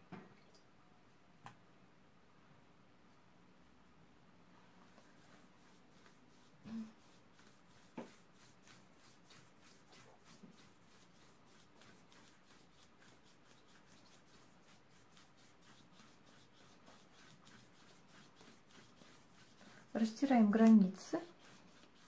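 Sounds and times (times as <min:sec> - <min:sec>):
brush scrubbing on paper: 0:04.9 - 0:22.0.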